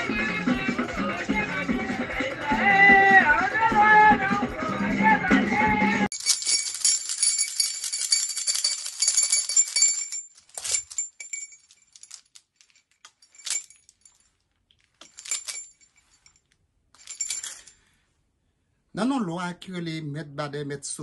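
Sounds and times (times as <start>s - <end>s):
beaded gourd rattle shaking: 6.1s - 14.2s, 14.9s - 16.4s, 17.0s - 17.7s.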